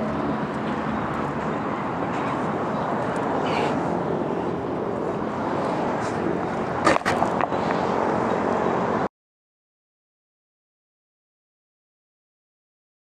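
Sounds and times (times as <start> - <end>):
bike clicks and rattles: 6.8 - 7.8.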